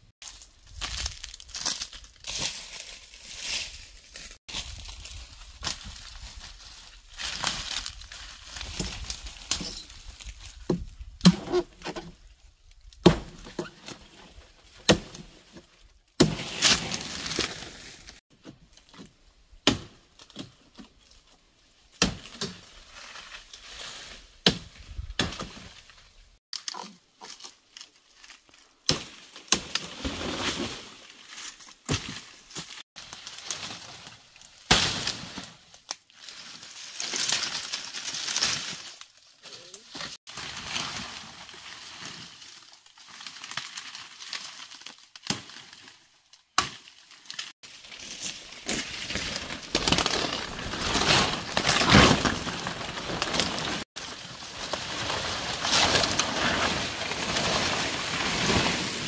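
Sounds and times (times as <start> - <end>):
rustling: 47.2 - 59.0.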